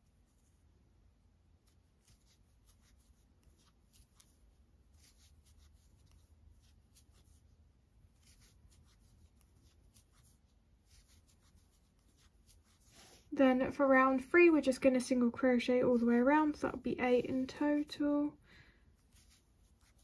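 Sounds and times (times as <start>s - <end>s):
low room hum: 0.0s - 20.0s
crochet hook pulling yarn: 1.5s - 13.3s, 19.0s - 20.0s.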